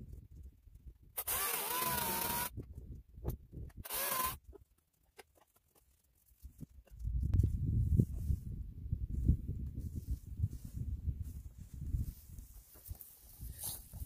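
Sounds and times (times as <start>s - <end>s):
electric chainsaw cutting log: 1.2s - 2.6s, 3.8s - 4.4s.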